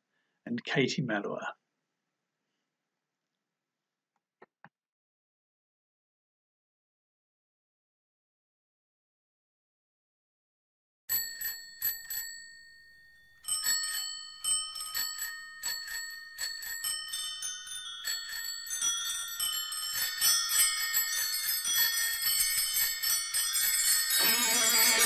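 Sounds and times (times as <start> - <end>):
bicycle bells ringing: 11.1 - 25.0.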